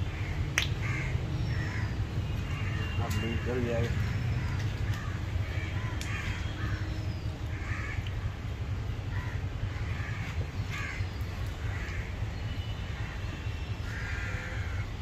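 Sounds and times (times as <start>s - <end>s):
bird calls: 0.1s - 8.2s.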